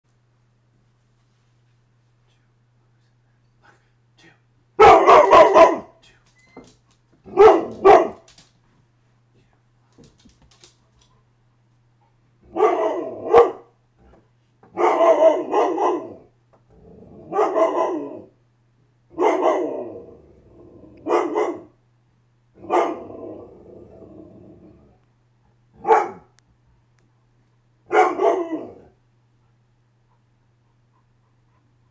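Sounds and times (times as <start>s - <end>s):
dog barking and growling: 4.8s - 6.0s, 7.2s - 8.4s, 12.4s - 18.4s, 19.1s - 21.8s, 22.6s - 25.0s, 25.7s - 26.4s, 27.8s - 29.0s.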